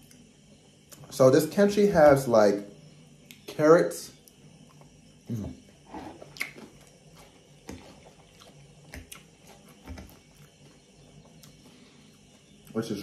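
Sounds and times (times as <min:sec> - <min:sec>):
wet chewing: 0:05.9 - 0:12.8
mouth smacks and clicks: 0:06.3 - 0:06.6.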